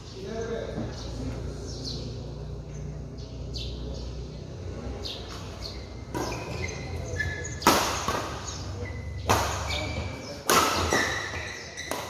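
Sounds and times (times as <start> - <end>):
shoes squeaking on court floor: 5.3 - 12.0
racket hitting shuttlecock: 6.1 - 6.7, 7.6 - 12.0.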